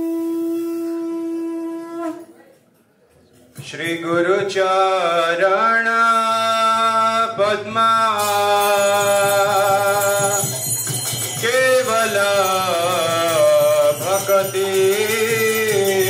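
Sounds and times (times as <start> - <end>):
faint jingling: 8.2 - 16.0.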